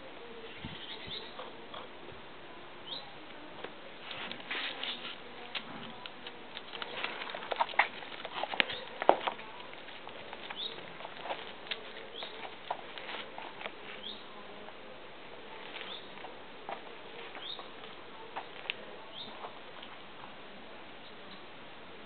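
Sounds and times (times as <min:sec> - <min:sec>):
light tapping and scratching: 0:04.0 - 0:14.2.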